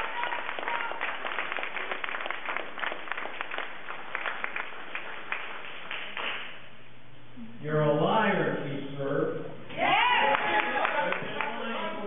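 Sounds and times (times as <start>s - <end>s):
audience applauding: 0.0s - 6.6s, 10.0s - 12.0s.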